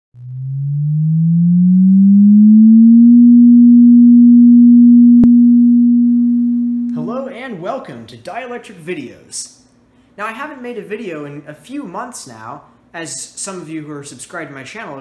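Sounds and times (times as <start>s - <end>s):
electronic sine tone: 0.1s - 7.1s.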